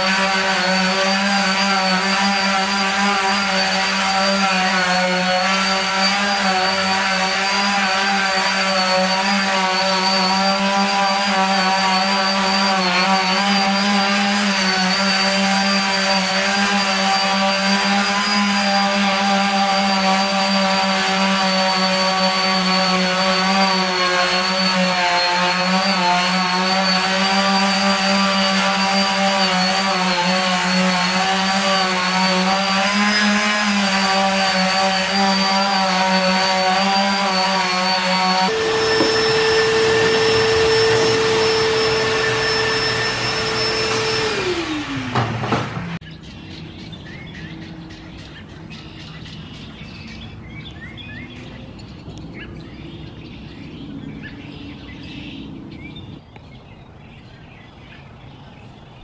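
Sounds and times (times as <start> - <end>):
electric sander on metal: 0.0 - 46.2.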